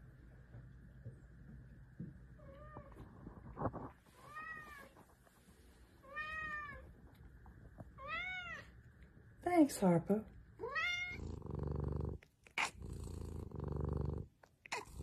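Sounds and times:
cat meowing: 0:08.0 - 0:08.7, 0:10.6 - 0:11.2.

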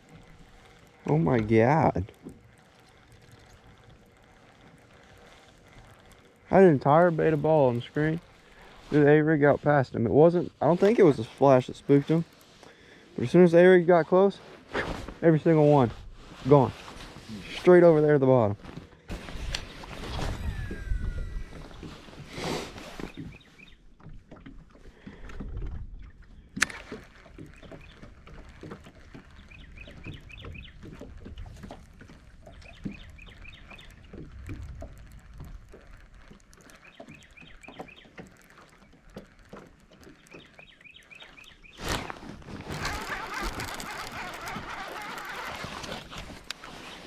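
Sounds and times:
fish splashing: 0:00.0 - 0:09.1, 0:19.0 - 0:47.0
fishing reel handling: 0:00.0 - 0:09.2, 0:19.1 - 0:23.2, 0:30.8 - 0:47.0
water lapping: 0:00.0 - 0:47.0
wind noise: 0:19.1 - 0:23.1.

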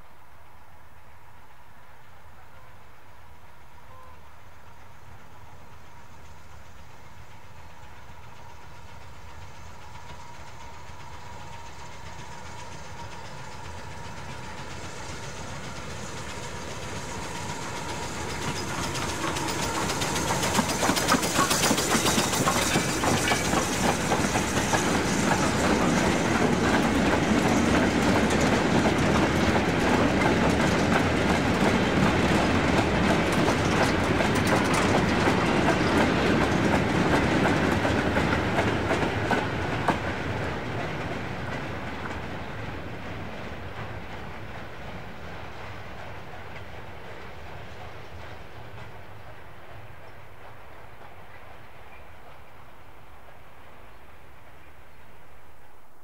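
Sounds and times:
steam locomotive approaching: 0:00.0 - 0:55.9
wagon wheels clattering over rail joints: 0:18.4 - 0:31.8.

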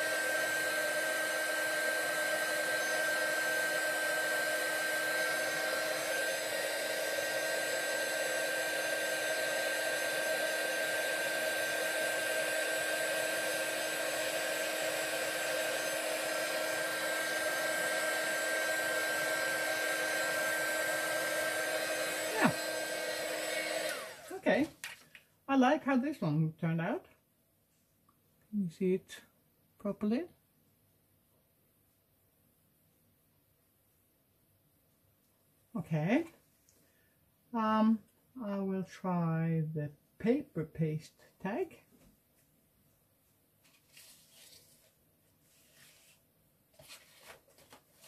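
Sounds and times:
heat tool fan blowing: 0:00.0 - 0:24.5.

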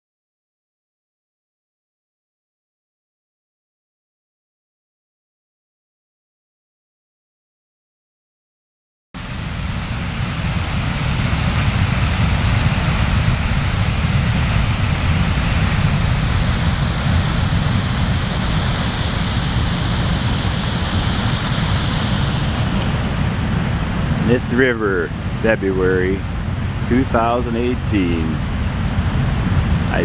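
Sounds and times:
floodwater rushing: 0:09.2 - 0:30.0
wind on microphone: 0:09.2 - 0:30.0.

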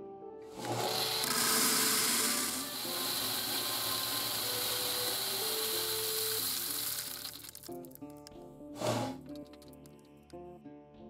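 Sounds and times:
corn kernels pouring into bucket: 0:00.5 - 0:08.2, 0:08.8 - 0:09.9.

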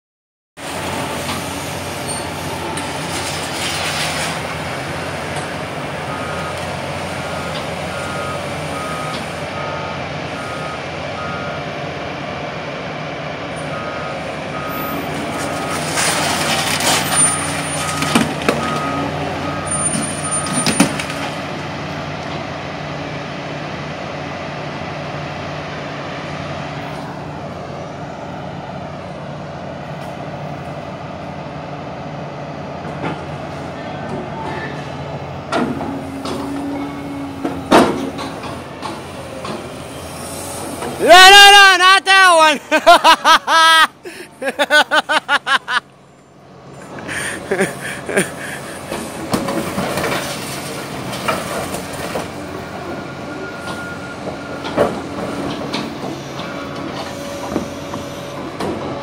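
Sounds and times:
diesel engine running: 0:00.6 - 0:41.7, 0:42.4 - 0:59.0
scrap metal crashing and clanging: 0:15.6 - 0:18.4.

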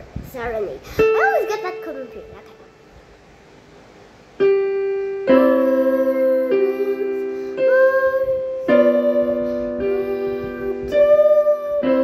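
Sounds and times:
piano playing slow melody: 0:04.4 - 0:12.0.

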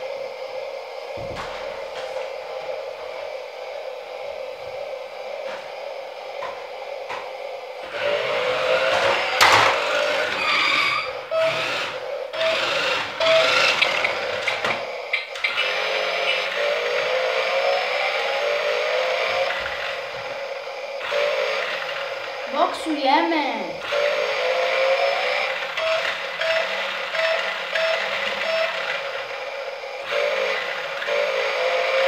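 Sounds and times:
toy car motor whining: 0:07.9 - 0:20.1, 0:21.0 - 0:22.5, 0:23.5 - 0:32.0
toy car knocking and clattering: 0:08.9 - 0:09.9.

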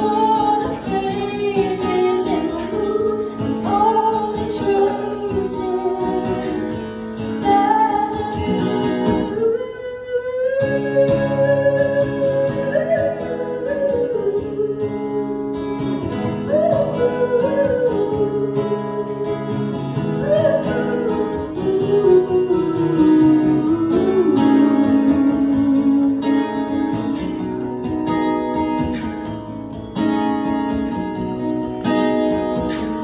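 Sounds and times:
woman singing: 0:00.0 - 0:27.4
acoustic guitar strumming: 0:00.0 - 0:33.0.

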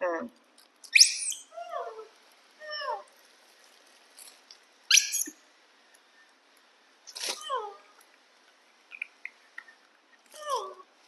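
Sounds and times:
macaque squealing: 0:00.9 - 0:01.5, 0:04.9 - 0:05.3.

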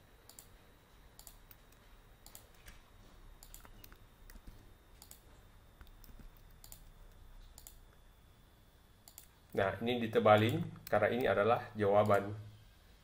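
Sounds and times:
keyboard and mouse clicks: 0:00.3 - 0:00.5, 0:01.2 - 0:02.8, 0:03.4 - 0:05.2, 0:05.8 - 0:07.9, 0:09.0 - 0:09.3.

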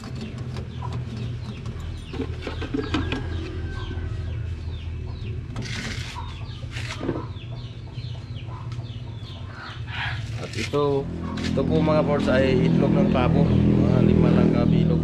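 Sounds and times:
chickens chirping and clucking: 0:00.0 - 0:14.3.

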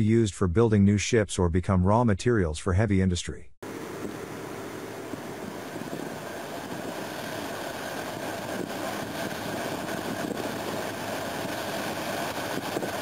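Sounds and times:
machinery hiss and low drone: 0:03.6 - 0:13.0.

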